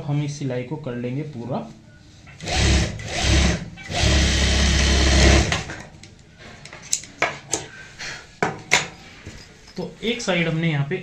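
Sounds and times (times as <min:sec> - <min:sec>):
sewing machine stitching: 0:02.4 - 0:05.8.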